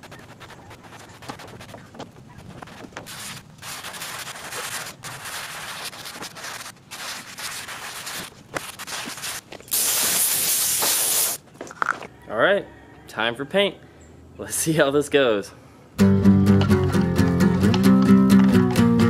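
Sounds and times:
sandpaper rubbing on metal: 0.0s - 11.4s
air blow gun hissing: 9.7s - 11.4s.

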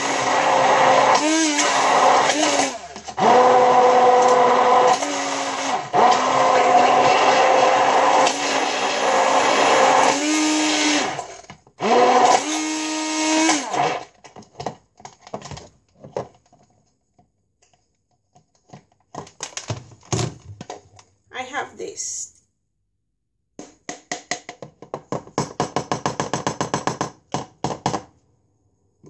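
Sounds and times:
electric hand blender whirring: 0.0s - 14.1s.

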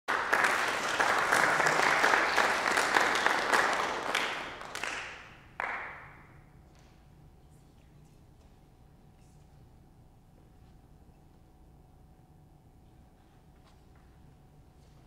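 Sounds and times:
audience applauding: 0.1s - 6.2s.

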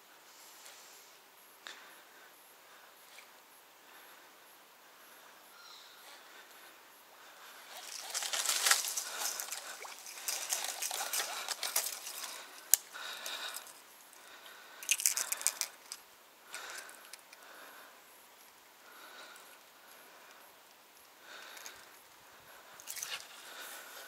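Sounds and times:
rustling and crunching in brush: 7.6s - 13.6s.

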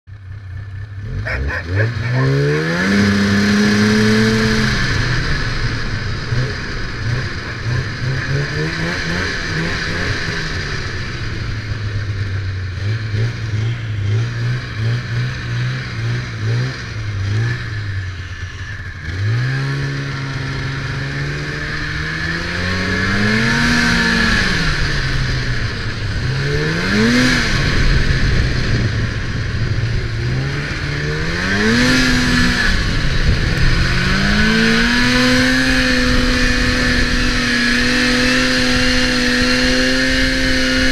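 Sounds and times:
snowmobile engine revving: 0.9s - 11.8s, 18.8s - 28.9s, 30.1s - 40.9s.

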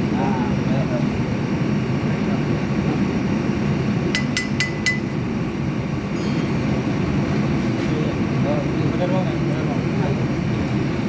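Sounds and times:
metal tools clinking on steel: 6.2s - 6.8s.

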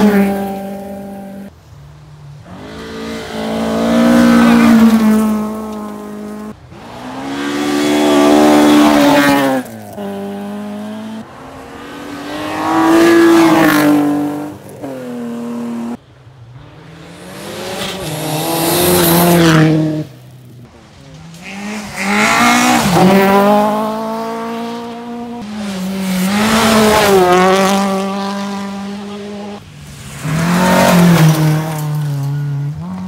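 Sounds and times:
rally cars racing past: 0.0s - 1.5s, 2.3s - 33.0s.

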